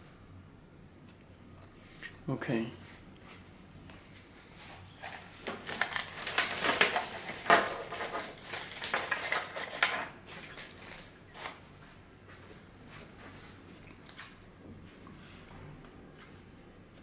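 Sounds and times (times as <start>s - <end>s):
plastic device clattering: 5.0s - 11.0s
packaging rustling: 5.0s - 11.6s.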